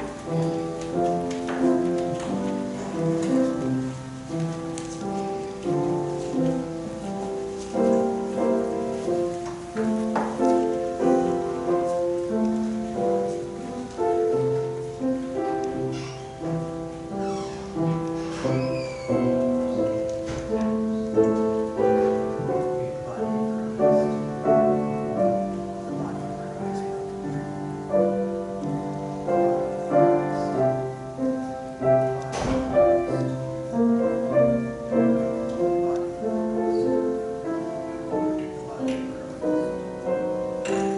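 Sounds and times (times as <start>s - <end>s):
slow quiet piano music: 0.0s - 40.9s
faint knocks: 9.3s - 12.6s.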